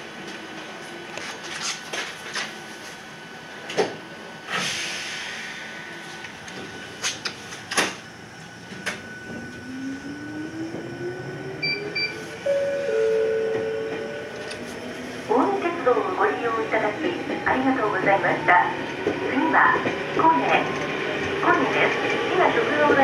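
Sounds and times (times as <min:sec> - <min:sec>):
air hiss: 0:04.5 - 0:06.2
train motor whine rising: 0:08.2 - 0:15.2
train clacks: 0:13.4 - 0:14.6, 0:18.9 - 0:23.0.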